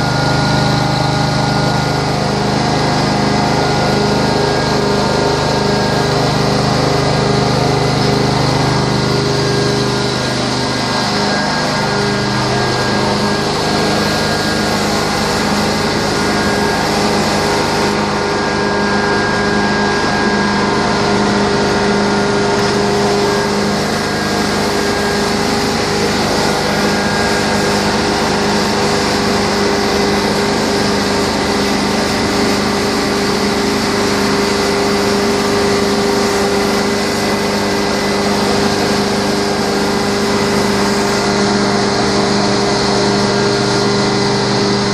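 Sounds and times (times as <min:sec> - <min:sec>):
carpet cleaner motor hum: 0:00.0 - 0:44.9.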